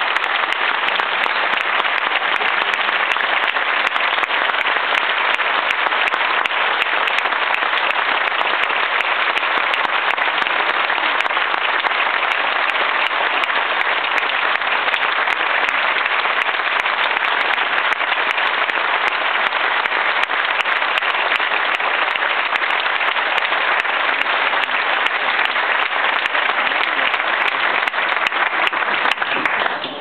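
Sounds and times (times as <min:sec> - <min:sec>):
large audience applauding: 0:00.0 - 0:30.0.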